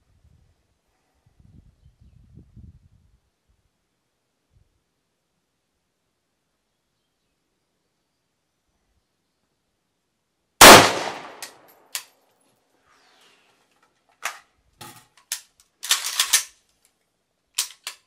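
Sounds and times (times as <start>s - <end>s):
rifle shot echoing: 10.6s - 11.7s
rifle clicks and metallic clatter: 10.6s - 12.6s, 13.7s - 18.0s.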